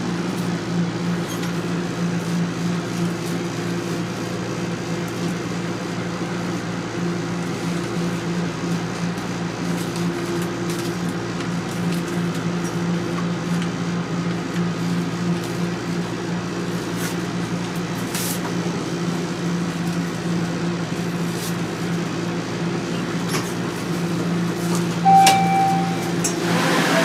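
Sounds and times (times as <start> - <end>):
electrical and ventilation hum: 0.0 - 27.0
short electronic tone: 25.0 - 27.0.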